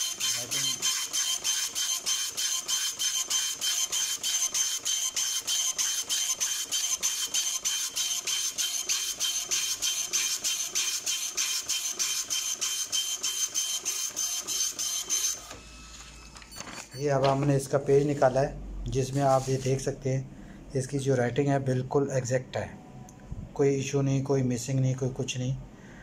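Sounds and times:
dot-matrix print head chattering: 0.0 - 15.6.

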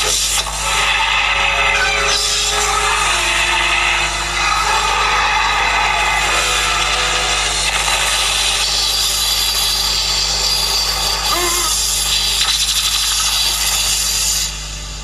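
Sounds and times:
steady low hum: 0.0 - 15.0
wavering cry: 11.3 - 11.8.

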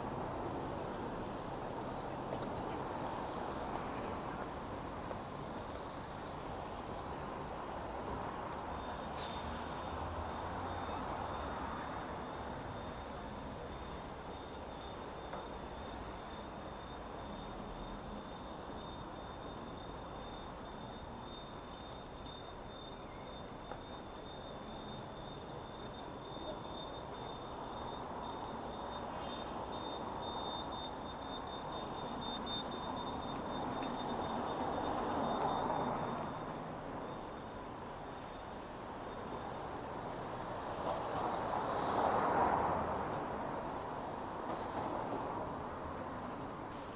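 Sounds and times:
busy road traffic: 0.0 - 46.9.

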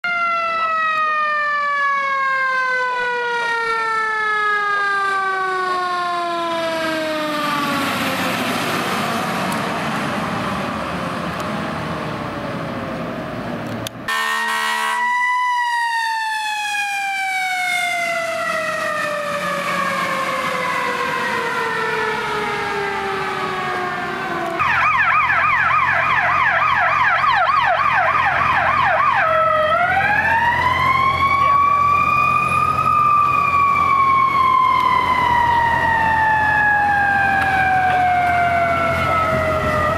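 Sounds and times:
warbling electronic siren: 0.0 - 11.0, 14.1 - 39.9
siren wailing: 0.0 - 12.9, 14.1 - 39.9
truck engine drone: 0.1 - 39.9
horn blast: 14.1 - 15.2.

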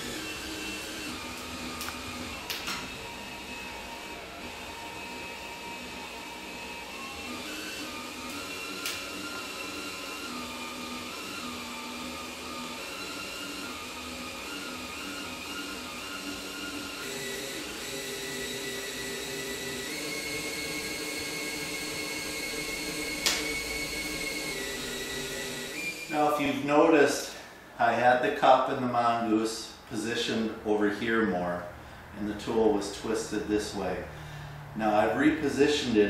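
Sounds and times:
cordless drill whine: 0.0 - 27.4.

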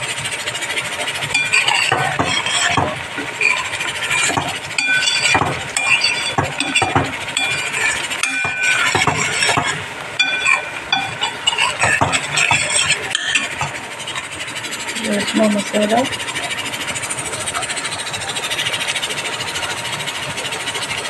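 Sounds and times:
spoon scraping metal pan: 1.2 - 16.4
high-pitched squeaky scrapes: 1.3 - 14.5.

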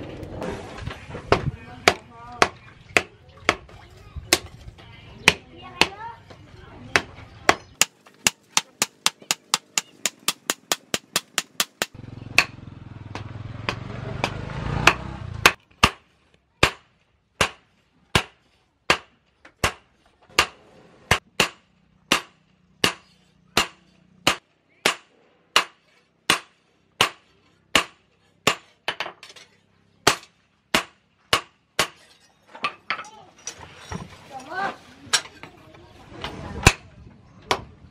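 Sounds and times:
low rumbling noise: 0.0 - 1.9
hammer striking metal on anvil: 7.8 - 16.0, 20.4 - 27.2.

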